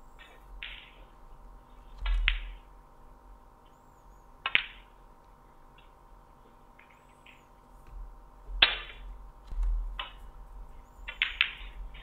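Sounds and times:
snooker balls clicking: 11.1 - 12.0.

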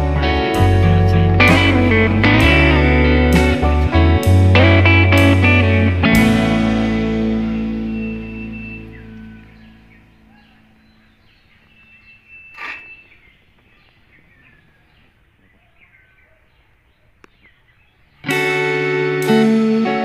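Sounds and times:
plucked guitar music: 0.0 - 11.0, 18.2 - 20.0
faint outdoor ambience: 0.0 - 20.0
small birds chirping: 6.7 - 20.0.

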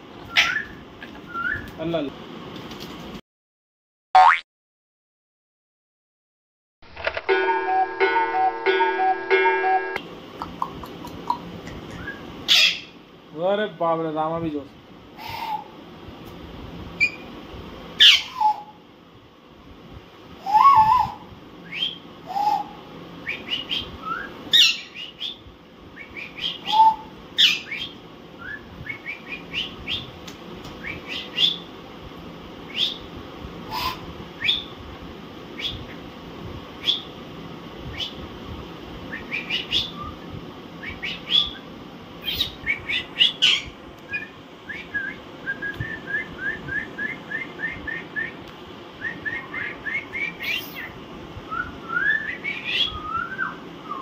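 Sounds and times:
parakeets squawking and chirping: 12.5 - 12.9.

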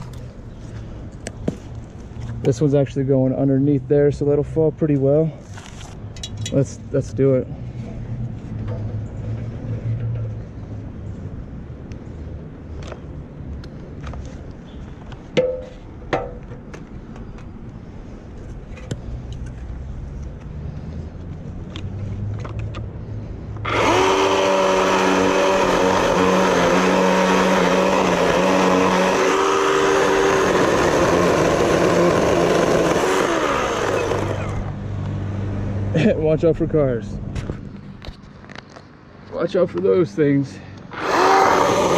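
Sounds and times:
electric chainsaw cutting wood: 23.6 - 34.8, 40.9 - 41.9.

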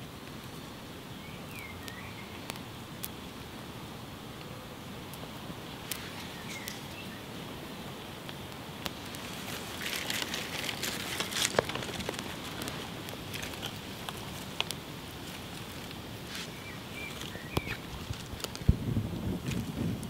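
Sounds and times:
fire crackling and snapping: 0.0 - 20.0
bird chirping: 1.0 - 2.6, 6.0 - 7.4, 16.3 - 18.0.

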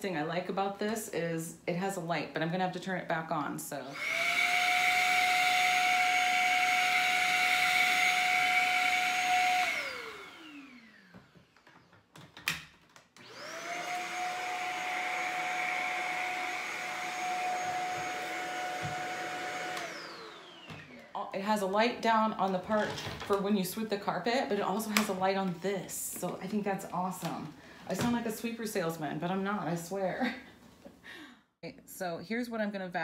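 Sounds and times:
stick vacuum motor whining: 3.9 - 12.0, 13.2 - 21.2.

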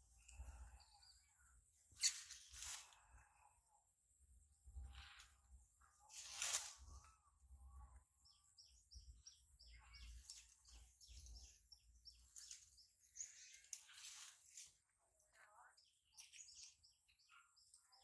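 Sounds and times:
leaves and branches rustling: 2.0 - 3.3, 6.0 - 7.3, 10.0 - 15.0.

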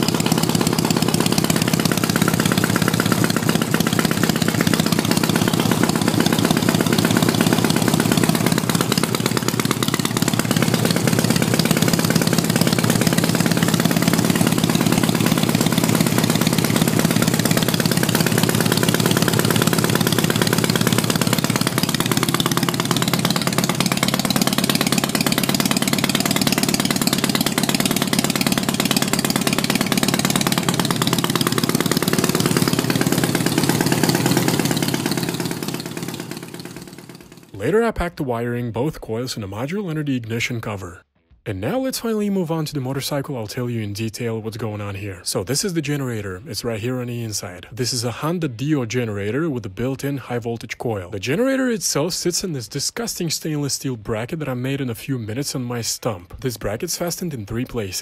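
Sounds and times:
motorcycle engine idling: 0.0 - 37.7.

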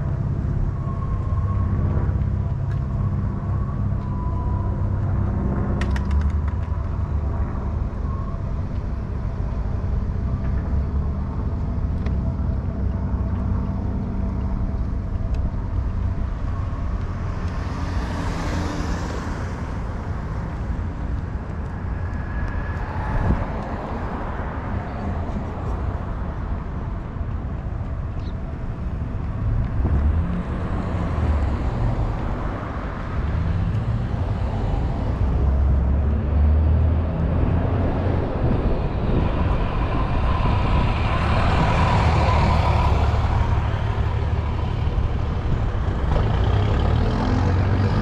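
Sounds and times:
low rumble of road noise: 0.0 - 48.0
rush of noise: 15.7 - 48.0.

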